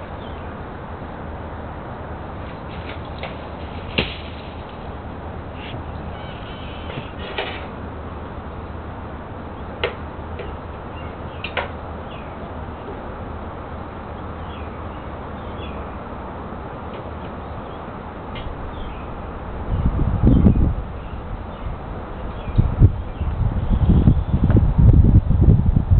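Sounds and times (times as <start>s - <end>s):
outdoor background noise: 0.0s - 25.9s
branches snapping: 2.4s - 5.0s
birds chirping faintly: 2.4s - 8.7s, 9.4s - 13.1s.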